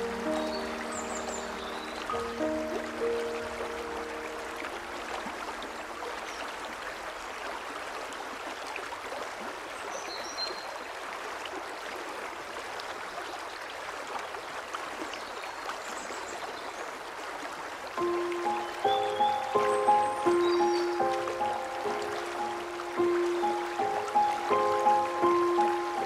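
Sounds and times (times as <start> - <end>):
stream flowing: 0.0 - 26.0
faint bird chirps: 18.0 - 21.7.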